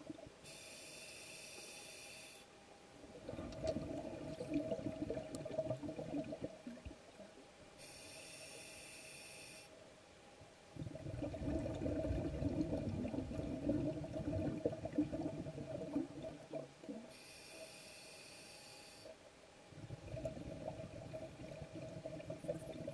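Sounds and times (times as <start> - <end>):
regulator hissing inhale: 0.4 - 2.5, 7.8 - 9.8, 17.1 - 19.2
exhaled bubbles gushing underwater: 3.1 - 7.0, 10.8 - 17.1, 19.7 - 22.9.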